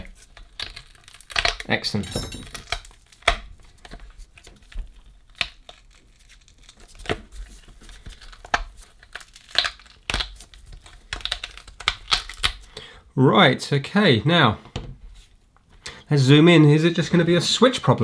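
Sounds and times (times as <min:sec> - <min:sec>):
tape and foam crackling and tearing: 0:00.0 - 0:02.0, 0:02.7 - 0:12.7.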